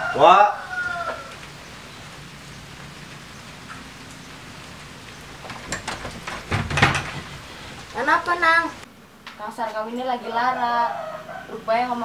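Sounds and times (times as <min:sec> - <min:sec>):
steady background hiss: 0:00.0 - 0:12.0
short knocks: 0:05.4 - 0:07.5.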